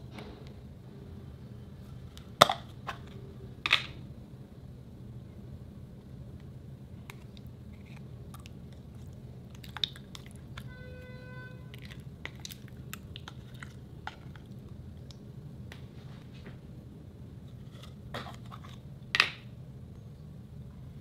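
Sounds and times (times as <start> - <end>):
steady low hum: 0.0 - 21.0
slime squelching and popping: 8.3 - 10.7.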